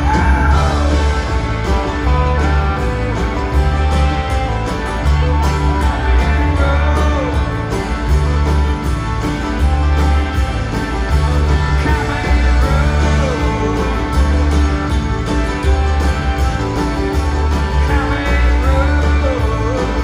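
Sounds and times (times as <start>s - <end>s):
person singing: 0.0s - 4.1s, 5.5s - 7.8s, 11.4s - 14.7s, 17.6s - 20.0s
country-rock band playing live: 0.0s - 20.0s.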